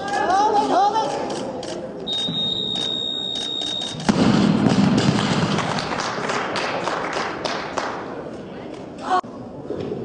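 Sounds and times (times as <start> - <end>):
high electronic beep: 2.1 - 4.0
audience clapping: 4.6 - 8.2.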